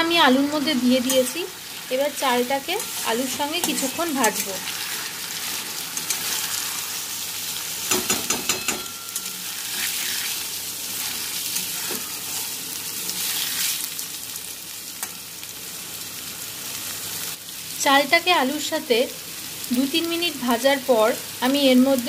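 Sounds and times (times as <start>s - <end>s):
rice and potatoes sizzling in oil: 0.0s - 22.0s
metal spatula scraping wok: 0.3s - 7.2s, 8.5s - 13.9s.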